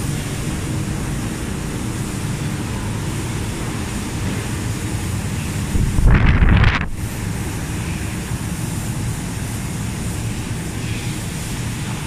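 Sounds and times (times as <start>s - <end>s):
fans and machinery humming: 0.0s - 12.0s
air buffeting microphone: 5.6s - 7.5s.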